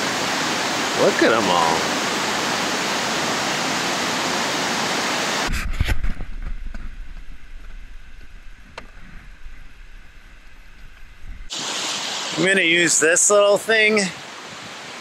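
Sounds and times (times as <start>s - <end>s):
water rushing from dam: 0.0s - 5.5s, 11.5s - 15.0s
faint low rumble: 5.5s - 11.5s.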